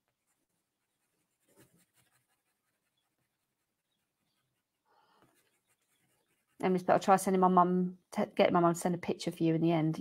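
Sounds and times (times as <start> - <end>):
pen scratching on paper: 0.0 - 6.8.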